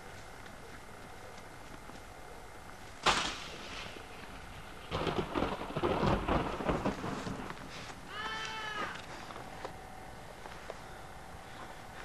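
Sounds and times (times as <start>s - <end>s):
loud crash: 3.0s - 4.0s.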